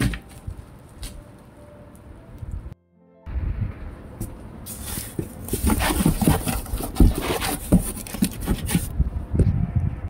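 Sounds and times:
cardboard rubbing and scraping: 4.7 - 9.0.

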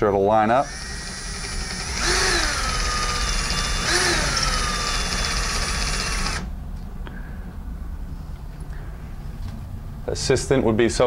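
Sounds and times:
cordless drill boring into drywall: 0.6 - 6.5.

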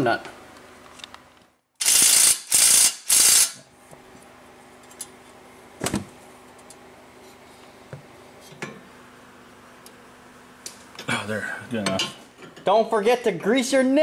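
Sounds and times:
impact wrench bursts: 1.8 - 3.6.

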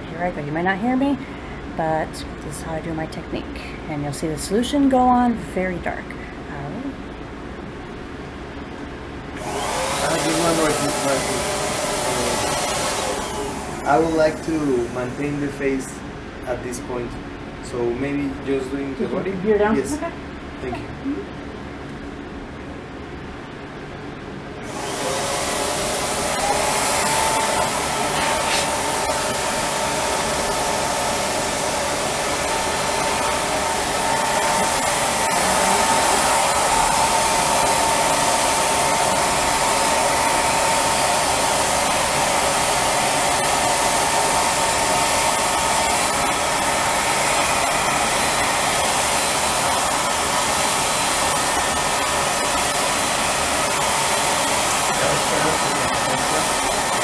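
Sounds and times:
turbine blower airy rush: 9.2 - 20.9, 24.6 - 57.0.

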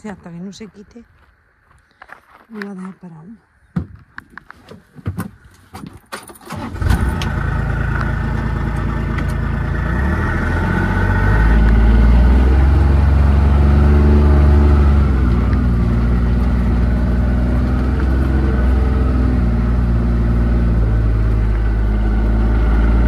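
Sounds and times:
vehicle engine starting and running: 6.1 - 23.0.

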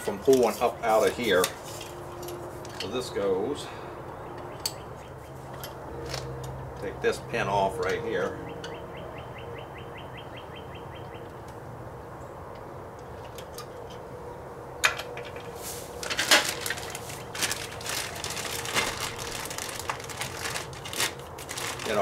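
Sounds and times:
plastic bag crinkling: 15.7 - 22.0.

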